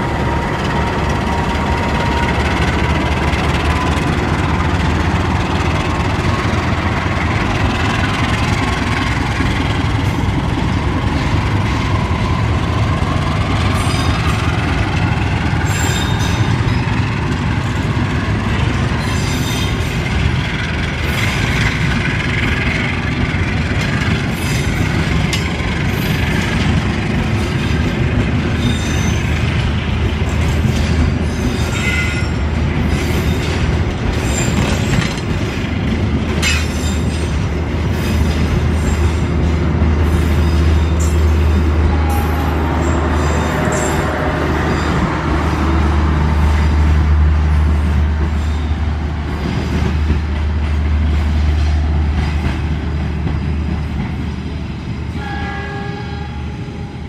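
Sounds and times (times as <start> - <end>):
train rumbling past: 0.0 - 57.0
wheel squeals: 28.6 - 29.4.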